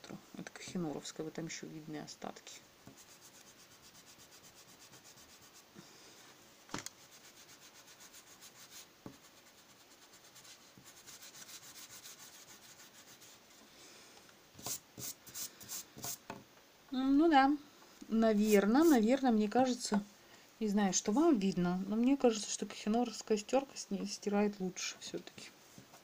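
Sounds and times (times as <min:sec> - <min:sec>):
eraser scrubbing on paper: 0:02.9 - 0:05.7, 0:07.0 - 0:13.4, 0:14.6 - 0:16.2, 0:18.3 - 0:19.1.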